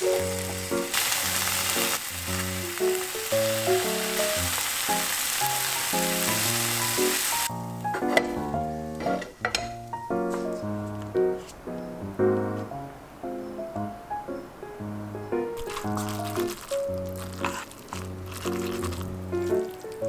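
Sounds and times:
meat sizzling in a frying pan: 0:00.0 - 0:07.5, 0:15.6 - 0:20.0
background music: 0:00.0 - 0:20.0
chopsticks stirring: 0:15.6 - 0:20.0.

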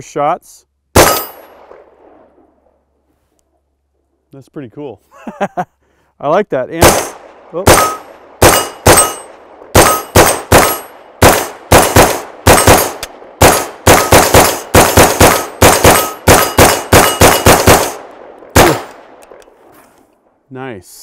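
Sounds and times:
pistol gunshots: 0:00.9 - 0:02.3, 0:06.8 - 0:19.5
steel targets ringing: 0:07.7 - 0:11.0, 0:15.9 - 0:17.6.

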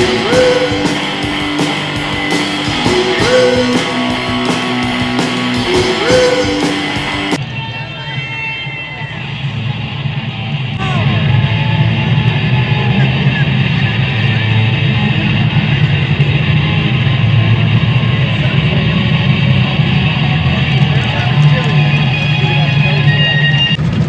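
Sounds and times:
live rock music with electric guitar: 0:00.0 - 0:09.4.

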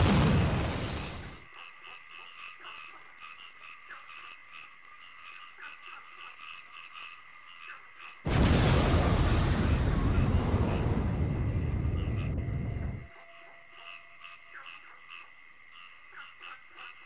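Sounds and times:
frogs calling: 0:00.6 - 0:17.0
loud rushing blast: 0:08.3 - 0:13.0.

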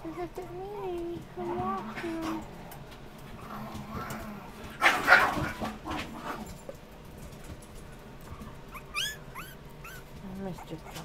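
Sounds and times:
puppy yipping: 0:08.7 - 0:11.0.

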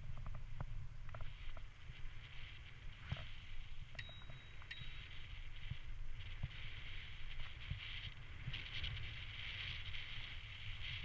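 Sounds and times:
bicycle tyres rumbling: 0:00.0 - 0:11.0
thin high tone: 0:03.9 - 0:05.7
short high pings: 0:04.0 - 0:05.3.

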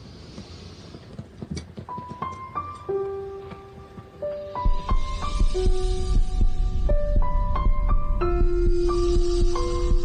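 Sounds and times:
melody over pulsing beat: 0:04.6 - 0:10.0.

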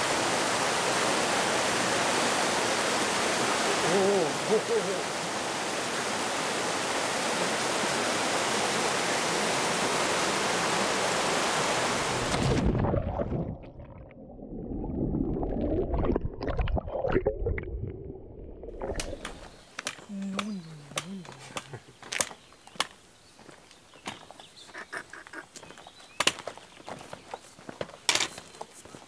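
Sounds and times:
waterfall pouring into pool: 0:00.0 - 0:13.6
underwater bubbling: 0:12.2 - 0:19.4.

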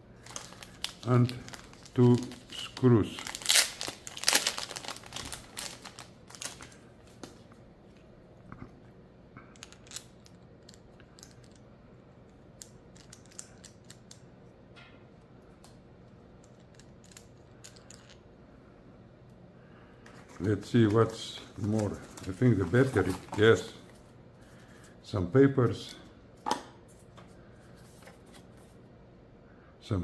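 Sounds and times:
plastic bag crinkling: 0:00.2 - 0:06.8, 0:20.4 - 0:23.9.

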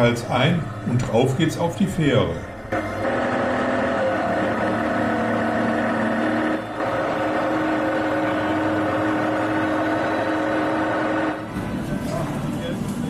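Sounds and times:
motorcycle engines running: 0:02.7 - 0:13.0.

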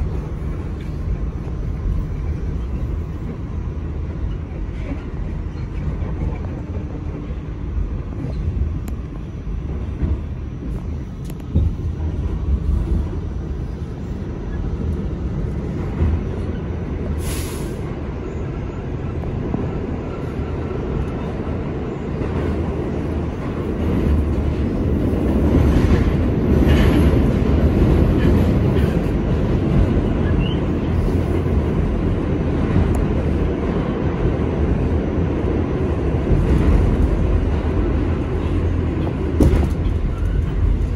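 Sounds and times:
subway wheels rumbling on rail: 0:00.0 - 0:40.9
short hiss: 0:17.2 - 0:17.8.

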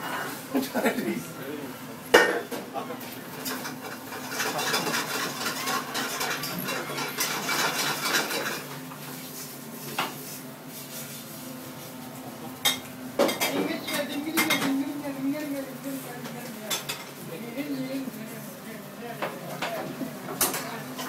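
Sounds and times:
dishes and cutlery clattering: 0:03.4 - 0:08.7, 0:12.6 - 0:14.8
man singing: 0:17.3 - 0:19.5.

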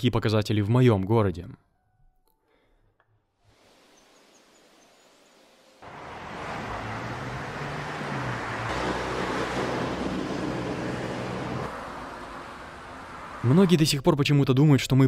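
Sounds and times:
faint outdoor hiss: 0:03.4 - 0:06.2
road traffic rushing: 0:05.8 - 0:13.8.

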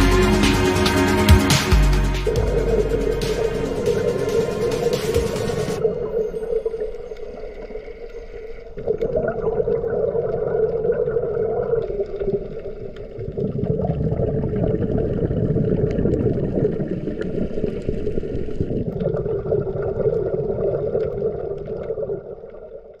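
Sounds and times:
muffled underwater rushing: 0:02.2 - 0:23.0.

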